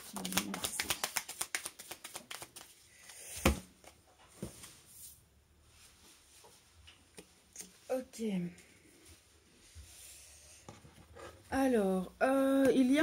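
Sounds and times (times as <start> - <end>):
cards shuffling clicks: 0.2 - 2.7.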